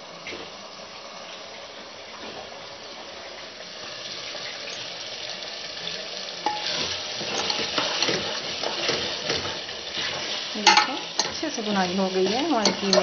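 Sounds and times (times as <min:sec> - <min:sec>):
meat sizzling in a pot: 0:00.0 - 0:13.0
metal spoon scraping a pot: 0:06.4 - 0:11.5, 0:12.2 - 0:13.0.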